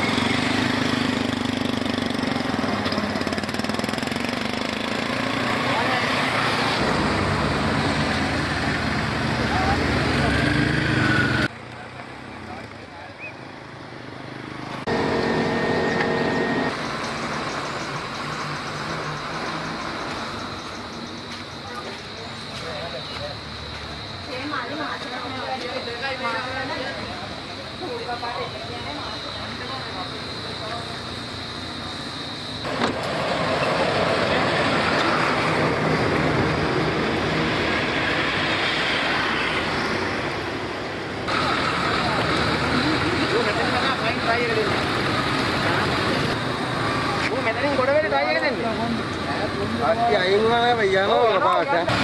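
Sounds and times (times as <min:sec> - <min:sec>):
loud pitched vehicle drone: 0:00.0 - 0:11.5, 0:14.8 - 0:21.2, 0:28.4 - 0:52.0
highway traffic passing: 0:00.0 - 0:52.0.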